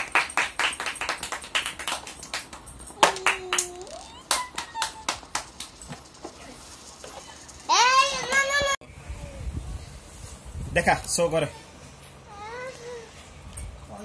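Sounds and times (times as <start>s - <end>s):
hand clapping: 0.0s - 6.2s.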